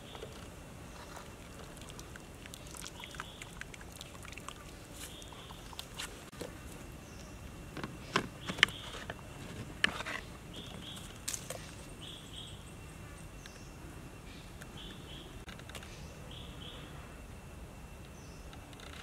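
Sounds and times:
insect drone: 0.0s - 19.0s.

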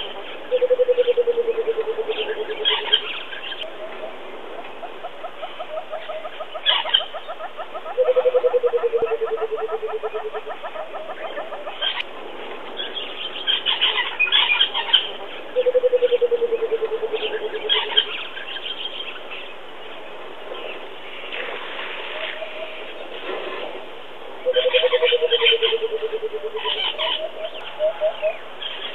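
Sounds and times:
bird bubbling call: 0.0s - 12.0s, 13.5s - 18.3s, 24.4s - 28.9s
small birds chirping: 0.0s - 28.9s.

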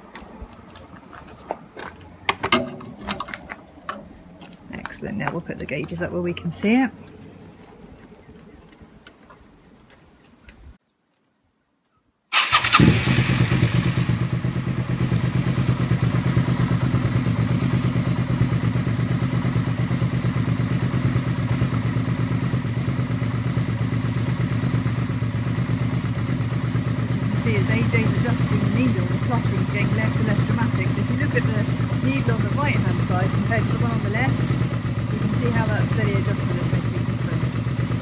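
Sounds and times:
motorcycle engine idling: 12.4s - 38.0s.

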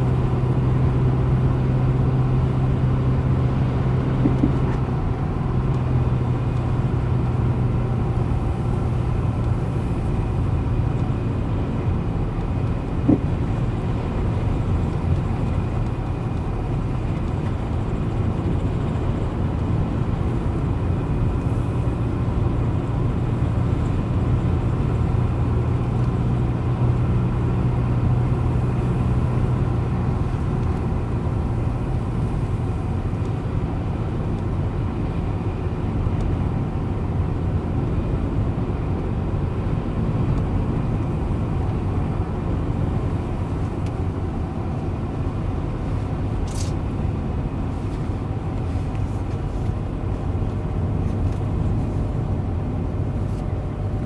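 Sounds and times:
car engine and tyre noise: 0.0s - 54.0s.

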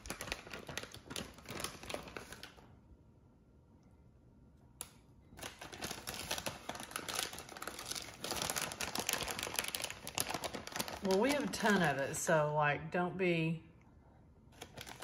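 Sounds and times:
plastic bag rustling: 0.0s - 2.7s, 5.4s - 12.0s, 14.6s - 15.0s.

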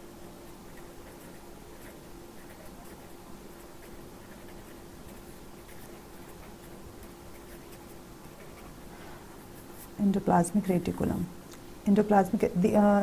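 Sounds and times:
steady low hum: 0.0s - 13.0s
pen scratching on paper: 0.7s - 8.8s.

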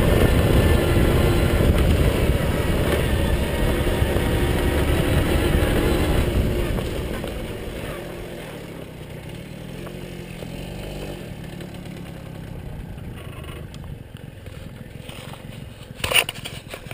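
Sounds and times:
moped two-stroke engine: 0.0s - 16.9s
tyres rolling over gravel: 11.5s - 16.9s.

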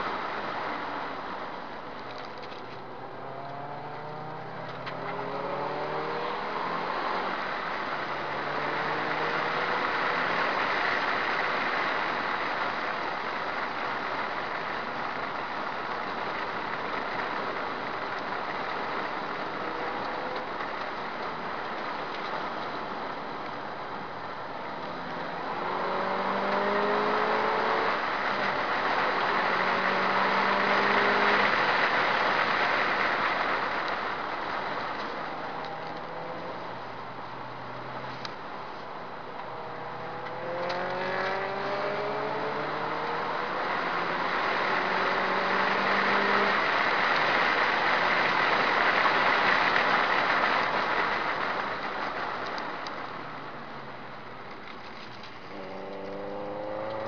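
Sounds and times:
car engine accelerating: 0.0s - 57.0s.

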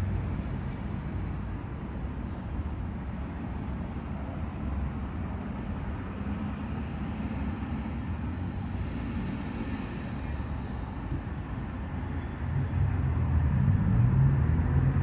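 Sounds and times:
low outdoor rumble: 7.2s - 15.0s.

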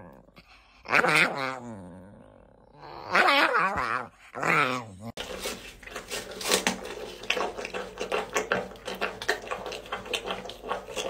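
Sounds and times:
animal crunching apple: 4.7s - 11.0s.

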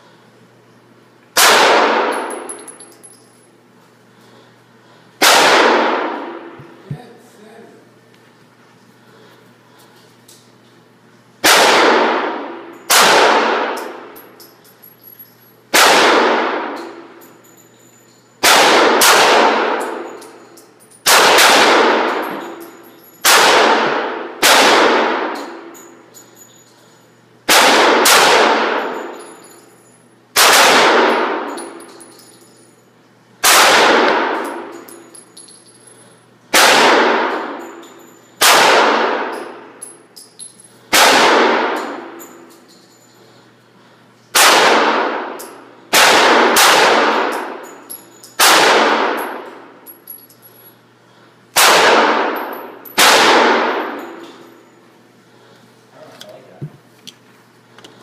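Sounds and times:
pistol shots echoing indoors: 1.3s - 3.2s, 5.2s - 6.8s, 11.4s - 14.5s, 15.7s - 17.2s, 18.4s - 26.0s, 27.4s - 32.3s, 33.4s - 35.6s, 36.5s - 40.1s, 40.8s - 42.6s, 44.3s - 50.4s, 51.5s - 55.0s.

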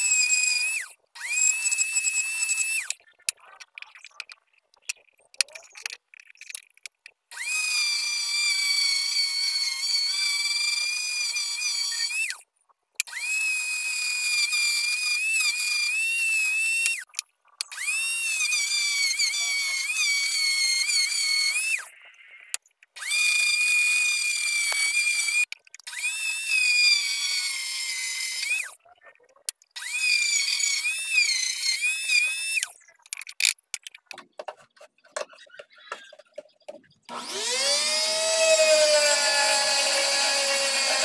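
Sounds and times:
rotary sanding tool whine: 37.1s - 41.0s.

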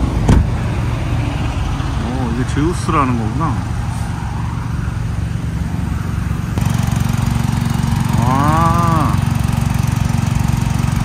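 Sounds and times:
diesel truck idling: 0.0s - 11.0s
vehicle engine and road hum: 0.0s - 11.0s
person's voice: 8.1s - 9.3s.

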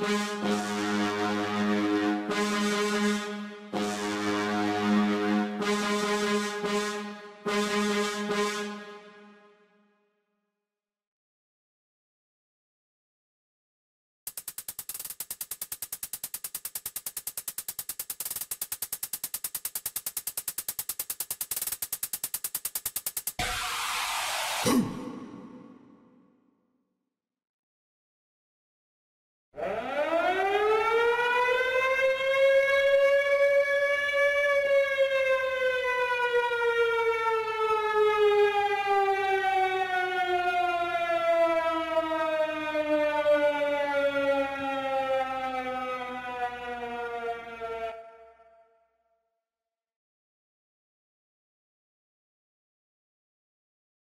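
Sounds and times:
air raid siren winding down: 0.0s - 9.4s, 23.4s - 26.0s, 29.6s - 48.5s
programmed hi-hats: 14.3s - 25.0s.

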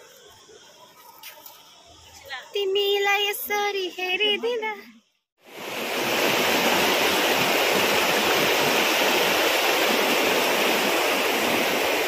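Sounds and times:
water rushing over rocks: 5.4s - 12.0s.

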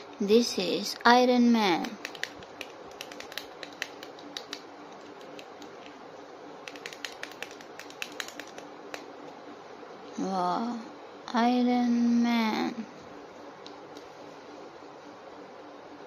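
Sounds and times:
plastic toy clicks and taps: 1.8s - 4.6s, 6.7s - 9.0s.

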